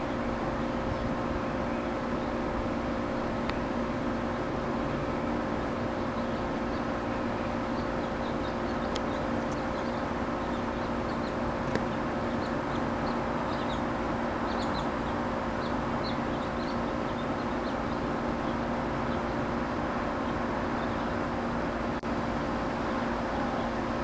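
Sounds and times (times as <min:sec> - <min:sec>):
bee swarm humming: 0:00.0 - 0:24.0
high bird chirps: 0:07.7 - 0:19.2.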